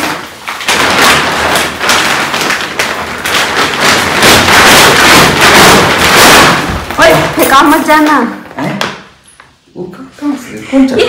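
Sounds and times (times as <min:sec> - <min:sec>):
plastic bag crinkling: 0:00.0 - 0:08.0.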